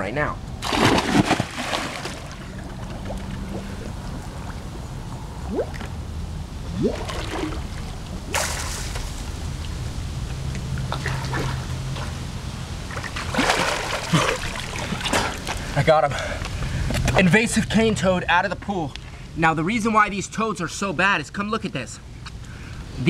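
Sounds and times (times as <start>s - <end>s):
pool water sloshing: 0.6s - 4.8s, 6.6s - 9.8s, 10.8s - 15.8s
water splashing: 0.6s - 4.8s, 6.6s - 9.8s, 10.8s - 15.7s
rising gurgles: 0.6s - 15.5s.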